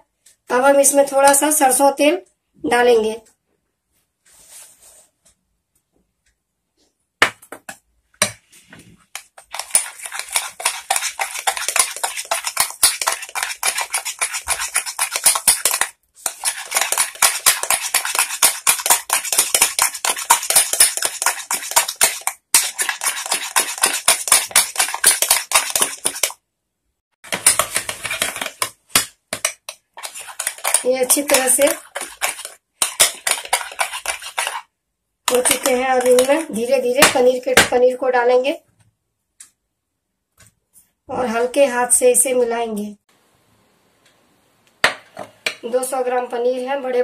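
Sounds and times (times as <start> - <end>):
spoon clinking and scraping glass bowl: 9.2 - 26.4, 27.3 - 28.8, 29.4 - 34.6, 35.3 - 36.5.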